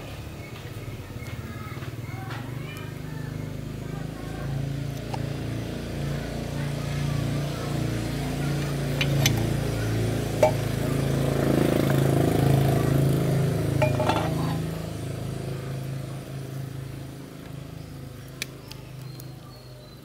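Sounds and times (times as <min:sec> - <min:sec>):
engine humming: 0:00.0 - 0:19.5.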